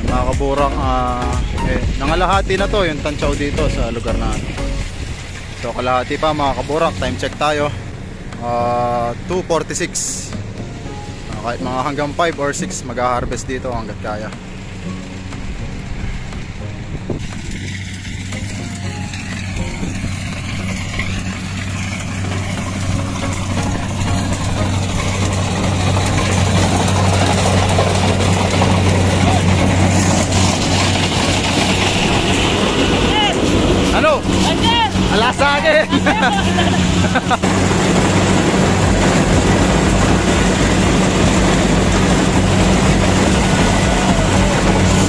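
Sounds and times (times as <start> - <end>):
combine harvester engine drone: 0.0 - 45.0
harvester cutting rice: 0.0 - 45.0.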